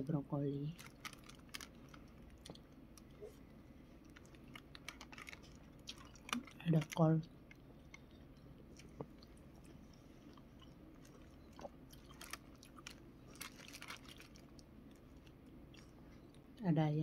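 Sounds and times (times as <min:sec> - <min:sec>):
soft chewing: 0:00.7 - 0:16.6.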